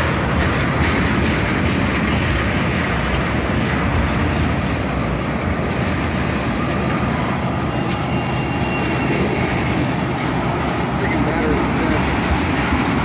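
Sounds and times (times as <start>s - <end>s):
train wheels rumbling on rails: 0.0s - 13.0s
faint high squeal: 6.4s - 9.4s.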